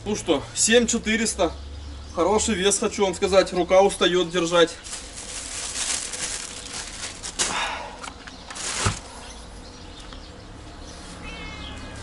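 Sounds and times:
rustling handling noise: 4.0s - 9.3s.

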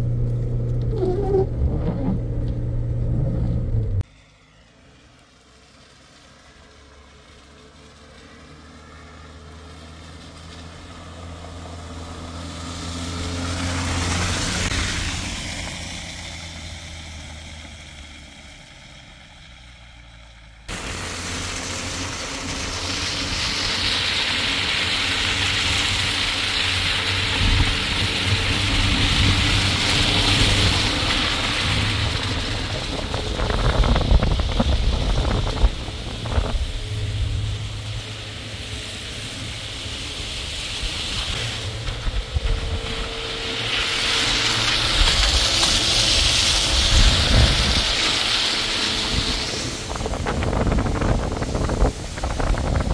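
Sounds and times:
low engine rumble: 0.0s - 52.9s
vehicle engine passing by: 0.0s - 52.9s
steady rushing noise: 20.7s - 52.9s.

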